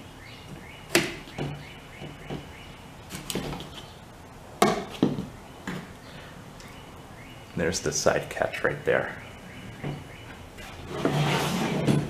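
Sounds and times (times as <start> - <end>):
steel scraping on steel: 10.6 - 12.0.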